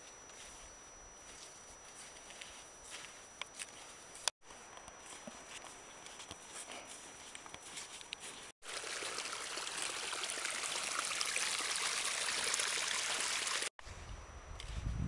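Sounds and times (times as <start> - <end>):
faint footsteps in snow: 0.0 - 8.6
meltwater trickling rush: 8.6 - 13.7.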